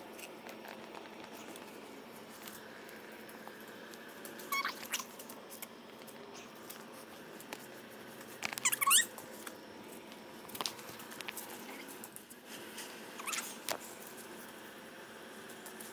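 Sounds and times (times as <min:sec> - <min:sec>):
high-pitched squeaks: 0:04.5 - 0:05.1, 0:08.5 - 0:09.1.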